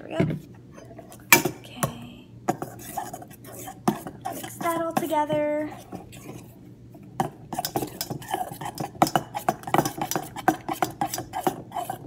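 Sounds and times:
spoon scraping metal bowl: 0:02.5 - 0:06.6, 0:07.2 - 0:12.0.

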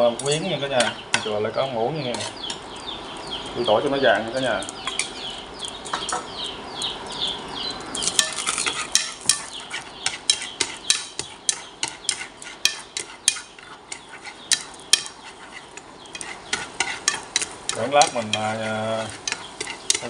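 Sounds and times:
high chirps: 0:00.0 - 0:20.0
chopsticks clicking against pan: 0:00.2 - 0:01.0, 0:04.2 - 0:20.0
garlic sizzling in oil: 0:07.9 - 0:20.0.

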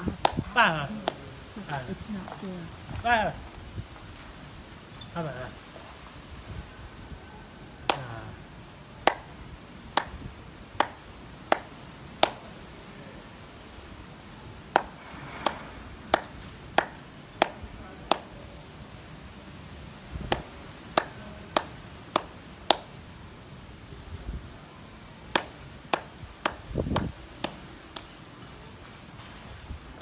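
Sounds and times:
hand claps: 0:00.2 - 0:00.4, 0:01.0 - 0:01.2, 0:07.8 - 0:08.3, 0:09.0 - 0:09.4, 0:10.0 - 0:12.5, 0:14.7 - 0:18.3, 0:20.3 - 0:22.9, 0:25.3 - 0:28.1.

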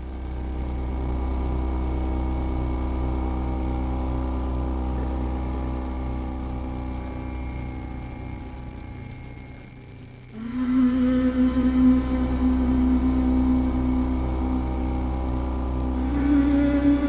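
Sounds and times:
deep synthesizer drone: 0:00.0 - 0:17.0
low throbbing pulse: 0:00.0 - 0:17.0
held synthesizer tones: 0:10.4 - 0:17.0.

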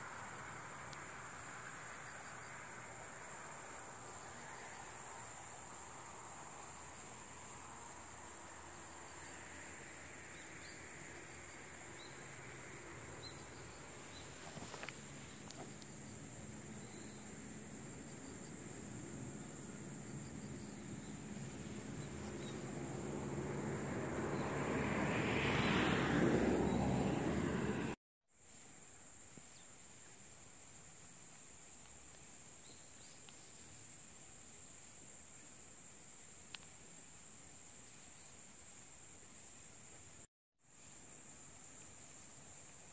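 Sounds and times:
crickets chirring: 0:00.0 - 0:42.9
loud rushing noise: 0:22.7 - 0:28.0.

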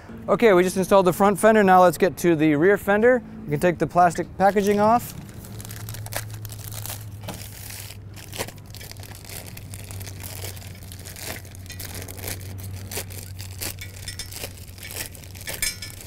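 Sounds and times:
plastic packaging crinkling and tearing: 0:04.5 - 0:16.0.

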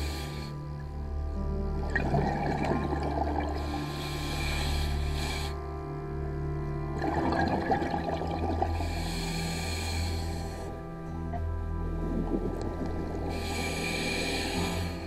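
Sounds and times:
steady droning hum: 0:00.0 - 0:15.0
exhaled air bubbling underwater: 0:01.4 - 0:05.6, 0:06.9 - 0:10.7, 0:11.3 - 0:15.0
regulator inhalation hiss: 0:03.6 - 0:05.7, 0:08.8 - 0:10.8, 0:13.3 - 0:15.0.

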